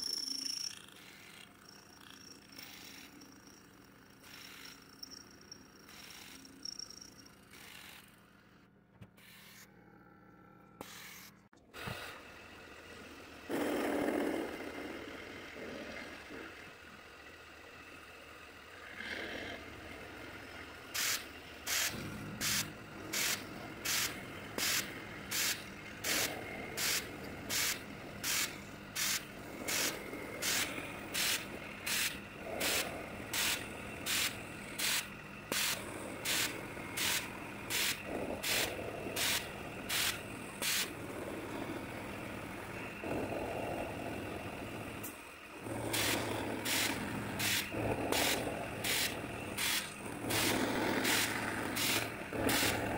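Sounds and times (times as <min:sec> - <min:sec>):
metal cutting bursts: 0:00.0 - 0:08.3, 0:20.8 - 0:41.0, 0:45.0 - 0:52.9
mill spindle humming: 0:00.0 - 0:09.8, 0:19.6 - 0:52.9.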